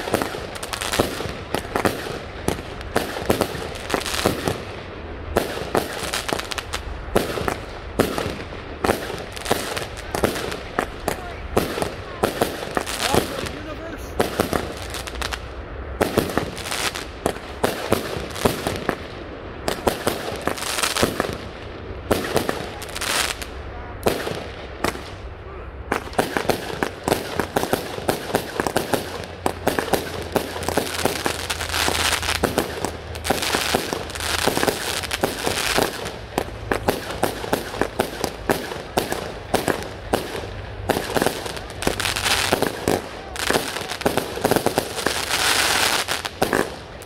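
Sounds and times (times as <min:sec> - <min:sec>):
fireworks bangs and pops: 0:00.0 - 0:25.3, 0:25.9 - 0:47.0
fireworks crackling: 0:00.0 - 0:47.0.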